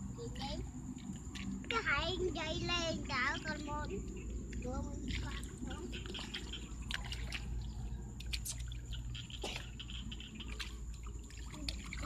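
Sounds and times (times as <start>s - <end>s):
steady low rumble: 0.0s - 12.0s
hands sloshing in muddy water: 4.4s - 12.0s.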